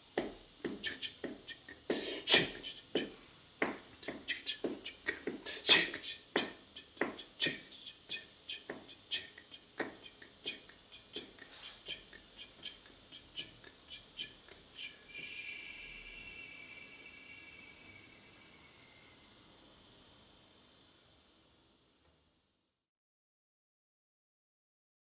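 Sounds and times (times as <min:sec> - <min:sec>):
man making percussive mouth sounds: 0:00.2 - 0:18.1.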